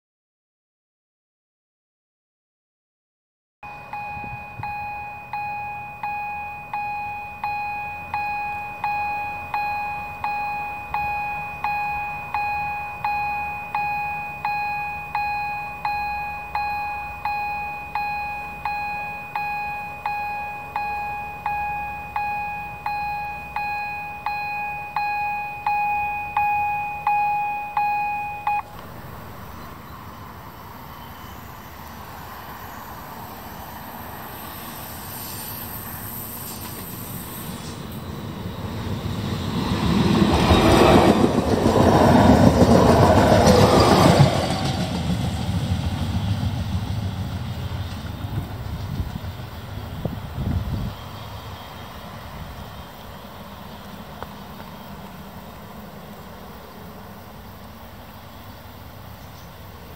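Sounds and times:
level-crossing warning bell: 3.6 - 28.8
faint approaching train: 28.6 - 59.9.

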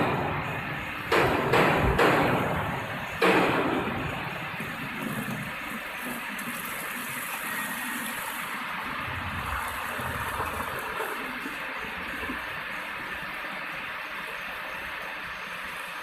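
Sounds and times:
water pouring into a plastic tub: 4.6 - 13.3.

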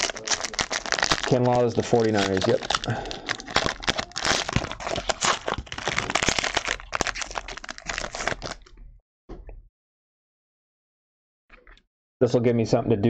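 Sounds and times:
card wrappers crinkling: 0.0 - 8.7.

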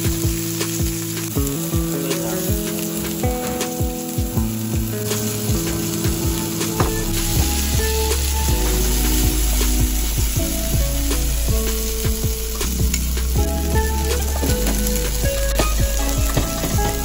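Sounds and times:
mushrooms sizzling in a pan: 0.0 - 17.0.

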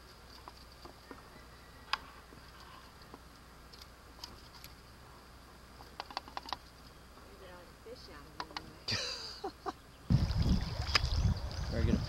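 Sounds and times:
paddle clicks and drips in water: 10.8 - 11.2.

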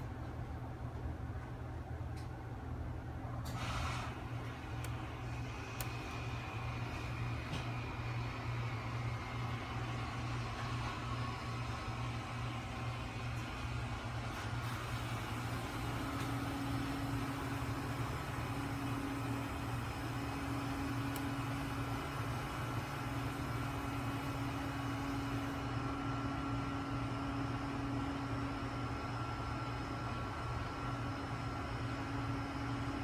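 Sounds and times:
low machine hum: 0.0 - 33.0.

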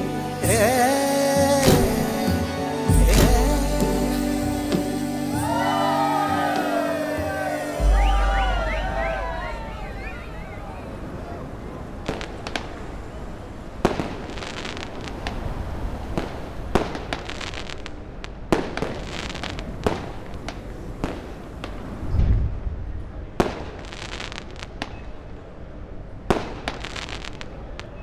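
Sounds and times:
fireworks banging: 1.6 - 2.1, 4.7 - 13.2, 13.8 - 22.1
fireworks crackling: 3.0 - 22.1, 23.3 - 25.1, 26.2 - 28.0
deep firework boom: 7.8 - 11.0.

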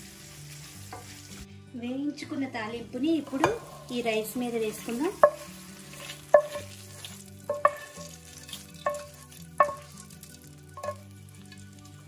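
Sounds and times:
spatula scraping a pan: 3.2 - 10.2, 10.8 - 11.0.

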